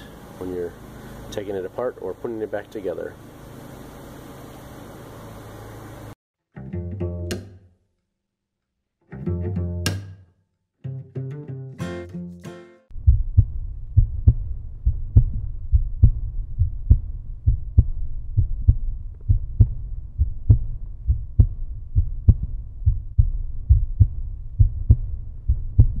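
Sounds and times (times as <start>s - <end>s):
deep thumping beat: 12.9s - 26.0s.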